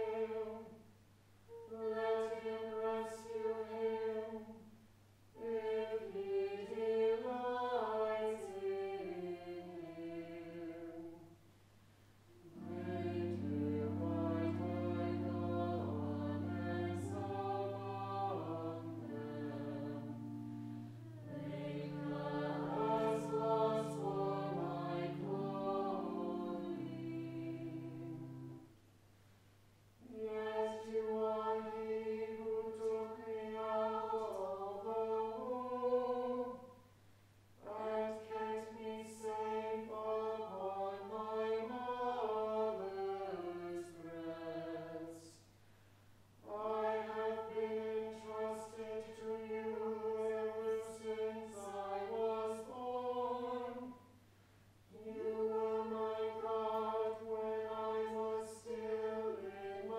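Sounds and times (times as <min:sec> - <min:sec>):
church choir singing: 0:00.0 - 0:00.7, 0:01.5 - 0:04.6, 0:05.4 - 0:11.2, 0:12.4 - 0:28.6, 0:30.0 - 0:36.7, 0:37.6 - 0:45.4, 0:46.4 - 0:54.1, 0:54.9 - 0:59.9
pipe organ: 0:12.5 - 0:28.6.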